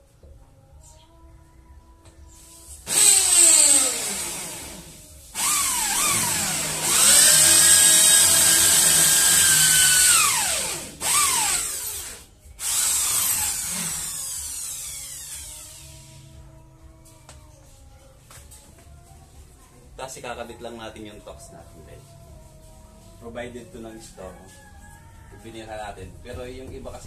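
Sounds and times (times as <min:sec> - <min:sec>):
electric drill boring into wall: 0:02.8 - 0:16.2.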